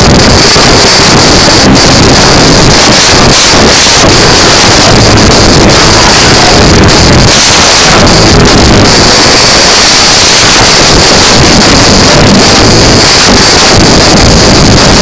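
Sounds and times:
distorted live rock band: 0.0 - 15.0.

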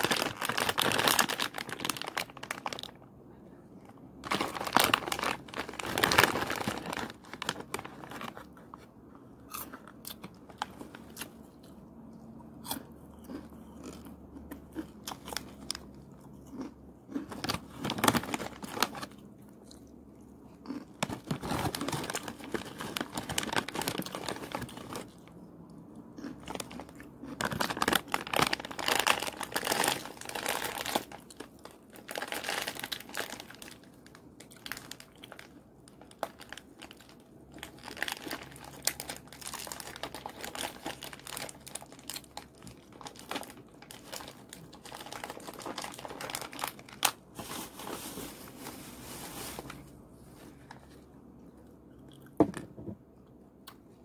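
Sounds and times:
plastic bag crinkling: 0.0 - 3.0, 4.2 - 8.7, 16.6 - 19.2, 20.7 - 25.3, 26.2 - 49.9
crunchy snack being chewed: 9.4 - 11.8, 12.6 - 47.2, 50.9 - 52.4.

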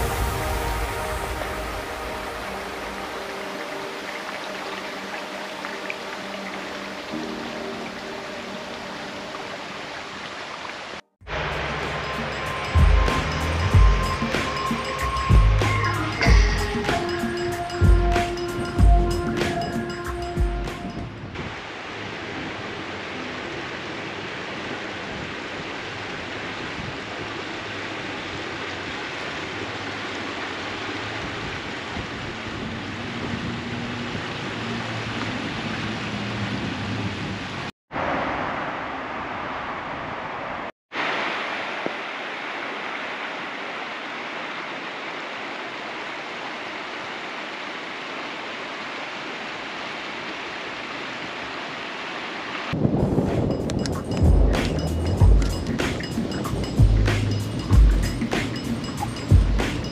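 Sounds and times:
steady rushing noise: 0.0 - 4.0.

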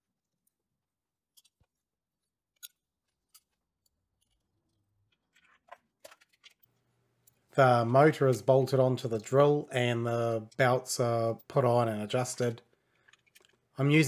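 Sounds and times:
small parts clicking and tapping: 0.2 - 9.4, 12.1 - 13.8.

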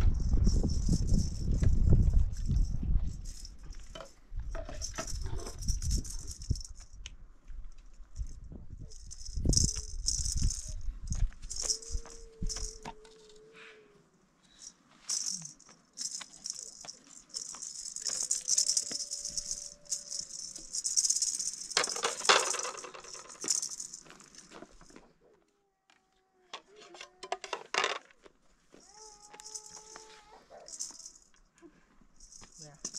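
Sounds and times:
high rattling hiss: 14.6 - 24.0.

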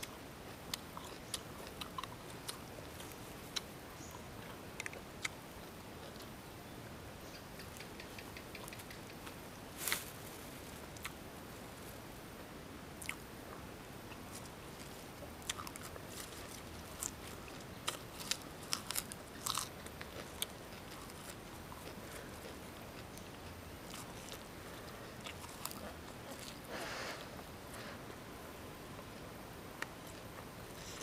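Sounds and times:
crunching and chewing lettuce: 0.0 - 6.4, 13.0 - 27.9, 29.8 - 31.0.

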